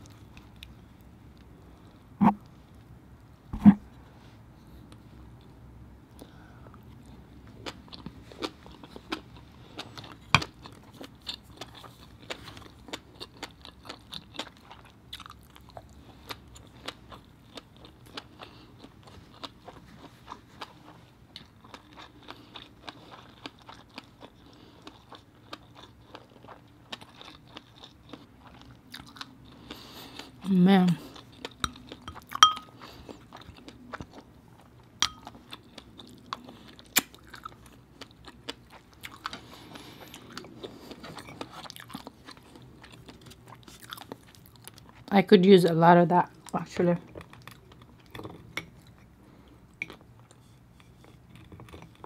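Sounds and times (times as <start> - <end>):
wet chewing mouth sounds: 7.0 - 45.1.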